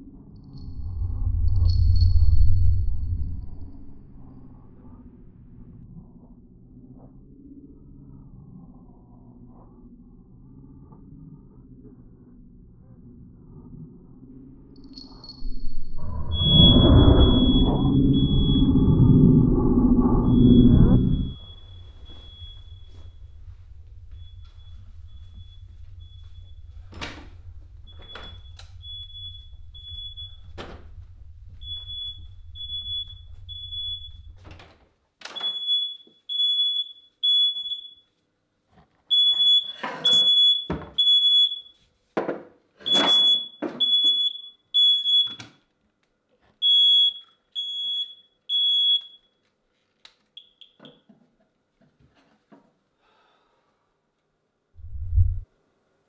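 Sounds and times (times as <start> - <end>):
low hum: 0.0 - 34.8, 54.8 - 55.5
electronic alarm beeping: 14.9 - 34.5, 35.4 - 38.1, 39.1 - 41.7, 42.9 - 45.5, 46.6 - 49.3.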